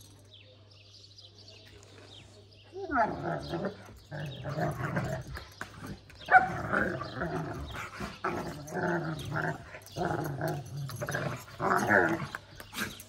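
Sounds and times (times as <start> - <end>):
puppies growling: 2.8 - 13.0.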